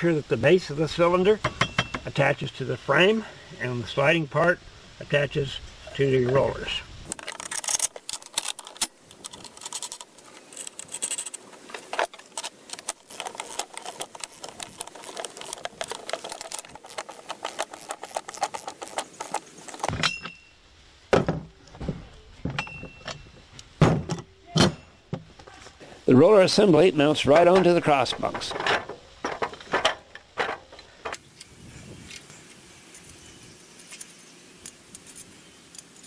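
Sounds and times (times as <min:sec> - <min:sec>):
metal bolts clinking and rattling: 0:07.1 - 0:20.4, 0:27.1 - 0:31.2.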